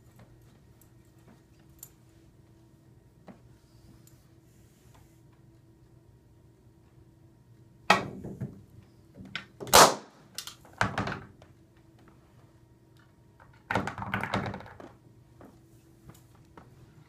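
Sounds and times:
balloon bursting: 9.7 - 10.2.

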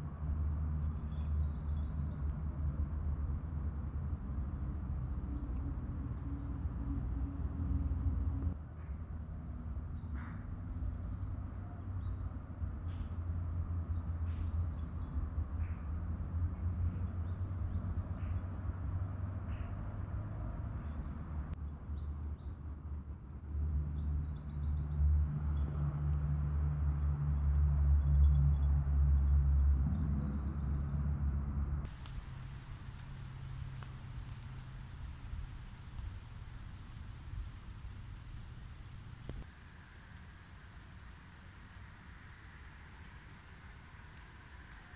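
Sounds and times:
small birds chirping: 29.4 - 44.9
low steady hum: 31.9 - 44.9.

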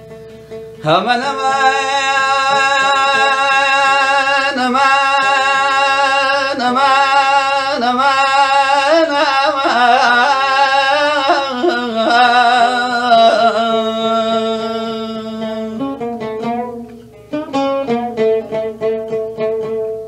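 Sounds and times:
oud plucked notes: 0.0 - 20.0
man singing: 0.8 - 16.0.

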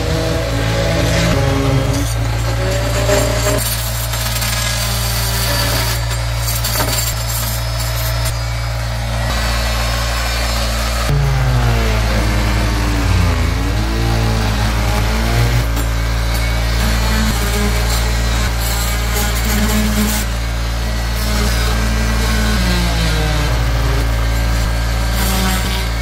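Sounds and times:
wavering pitched tone: 0.0 - 3.7, 5.4 - 18.6
motor humming: 0.0 - 26.0.

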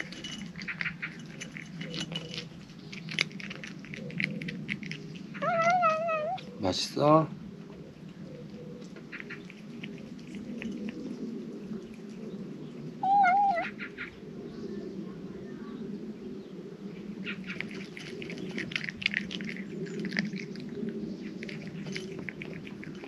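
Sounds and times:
cat crunching dry kibble: 0.0 - 6.9, 8.8 - 12.3, 17.2 - 23.0.

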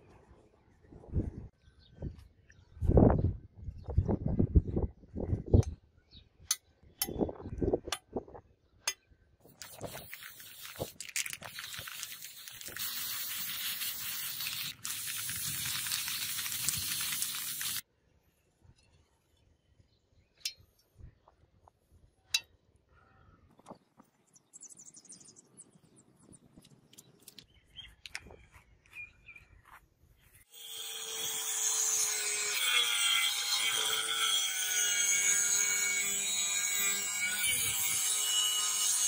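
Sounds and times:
spray can hissing: 9.5 - 17.8.

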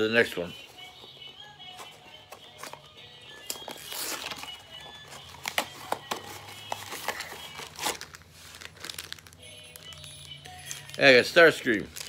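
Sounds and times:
plastic bag crinkling: 3.5 - 12.0.

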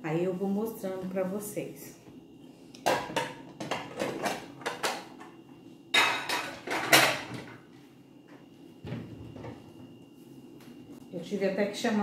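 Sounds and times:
dishes clattering: 2.9 - 5.2, 5.9 - 7.6
dishes clinking: 5.9 - 7.4.

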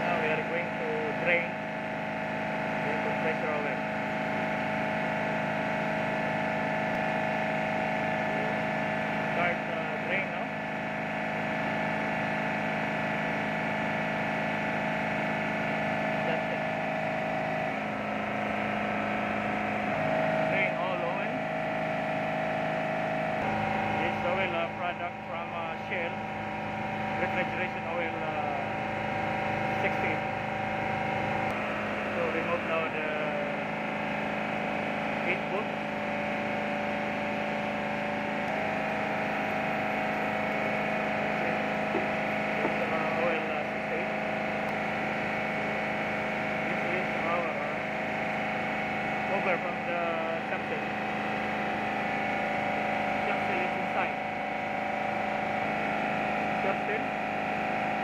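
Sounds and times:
shipboard machinery drone: 0.0 - 58.0
higher steady tone: 13.2 - 58.0.

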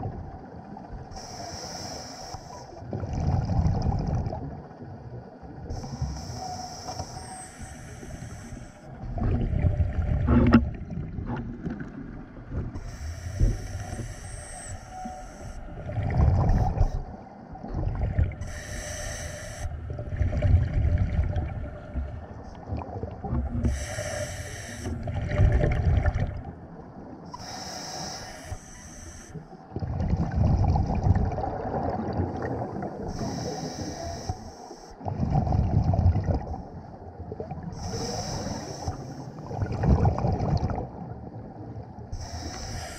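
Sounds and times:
exhaust bubbles rumbling: 25.0 - 26.7, 29.8 - 33.1, 39.5 - 41.2.

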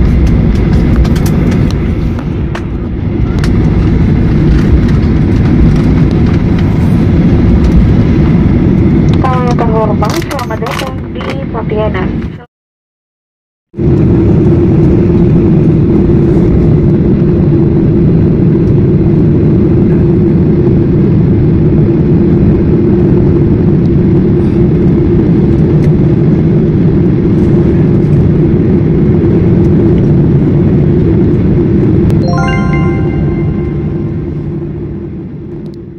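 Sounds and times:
airliner cabin rumble while taxiing: 0.0 - 12.5, 13.8 - 32.2.

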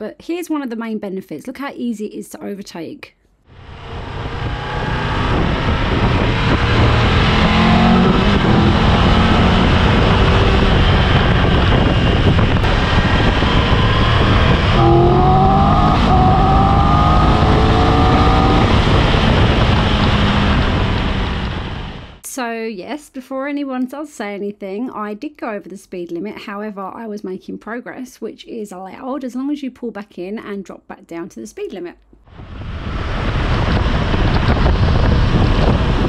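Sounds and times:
motorcycle engine accelerating: 3.5 - 22.2, 32.3 - 36.0
wind rush over microphone: 3.6 - 22.2, 32.3 - 36.0.

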